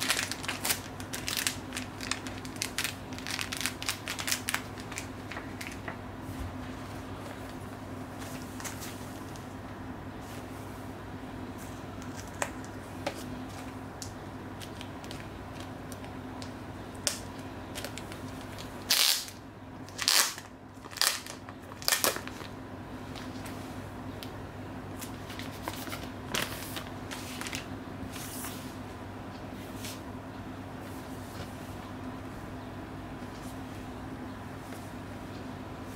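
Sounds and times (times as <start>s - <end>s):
shrink wrap crinkling: 0.0s - 9.6s, 11.7s - 23.6s, 24.2s - 28.4s
steady low hum: 0.0s - 35.9s.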